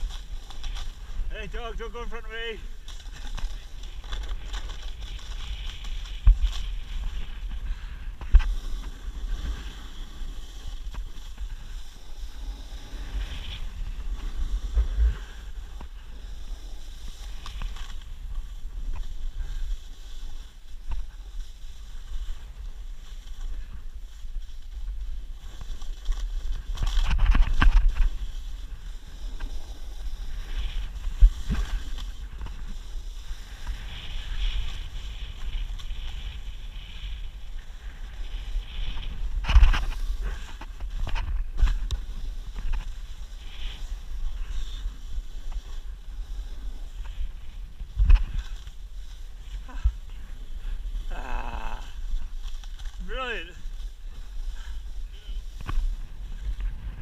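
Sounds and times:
skis sliding on snow: 0.0 - 57.0
wind rumbling on microphone: 0.0 - 57.0.

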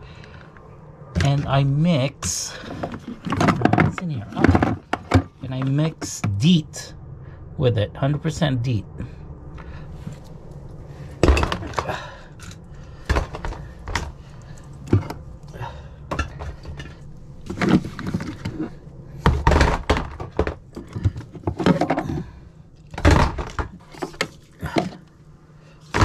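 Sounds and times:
plastic bottles and cans clattering: 2.5 - 6.1, 11.2 - 14.2, 14.8 - 25.1.

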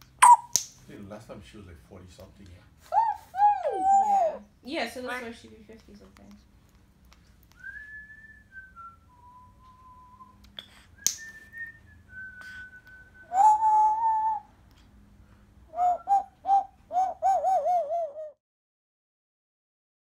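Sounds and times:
parrot calls: 0.0 - 0.6, 2.9 - 4.5, 13.3 - 14.5, 15.7 - 18.4
parrot whistling: 0.2 - 0.6, 2.9 - 4.4, 11.1 - 14.5, 15.7 - 18.4.

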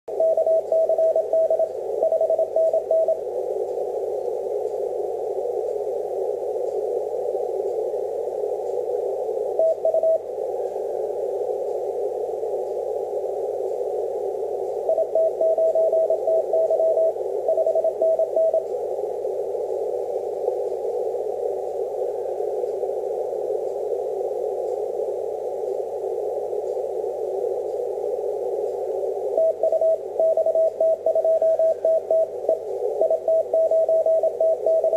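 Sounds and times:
morse code tone: 0.1 - 3.2, 14.9 - 18.6, 29.4 - 34.9
radio receiver hiss: 0.1 - 34.9.

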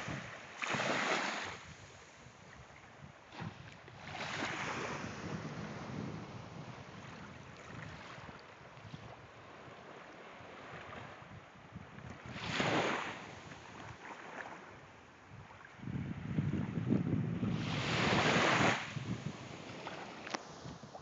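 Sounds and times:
surf washing onto shore: 0.0 - 1.8, 17.4 - 21.0
wind on microphone: 0.0 - 14.6, 15.2 - 21.0.

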